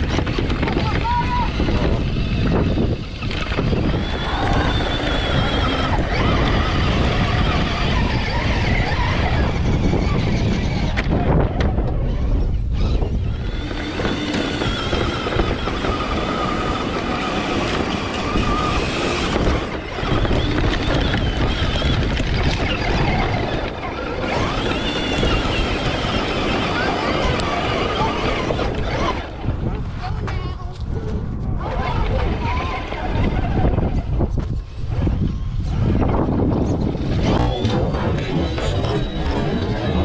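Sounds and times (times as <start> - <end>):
tyres grinding on loose dirt: 0.0 - 11.1, 13.2 - 29.4
electric motor whining: 0.0 - 29.4, 36.8 - 40.0.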